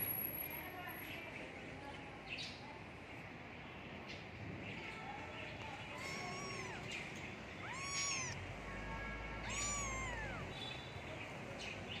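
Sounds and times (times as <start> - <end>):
kitten meowing: 5.9 - 7.0, 7.6 - 8.4, 9.4 - 10.6.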